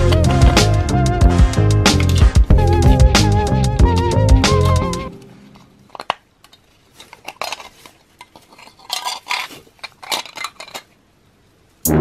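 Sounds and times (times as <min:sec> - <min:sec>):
model car parts clicking and rattling: 0:05.6 - 0:11.0.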